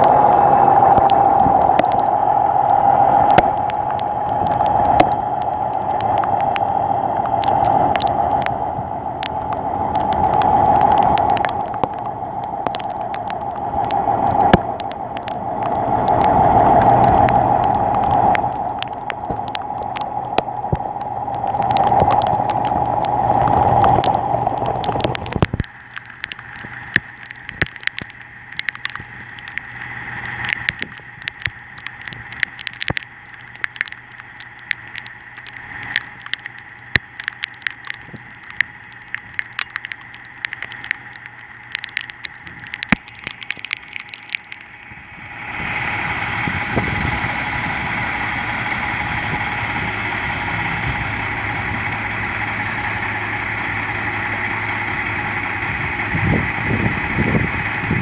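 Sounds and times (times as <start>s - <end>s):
loud steady whine: 0.0s - 58.0s
rain ticking on camera: 0.0s - 58.0s
diesel truck engine running: 44.6s - 58.0s.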